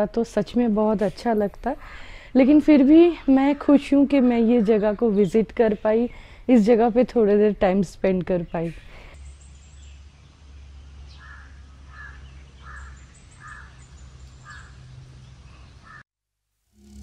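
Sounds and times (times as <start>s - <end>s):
crow cawing: 11.1s - 13.8s, 14.4s - 14.8s, 15.8s - 16.0s.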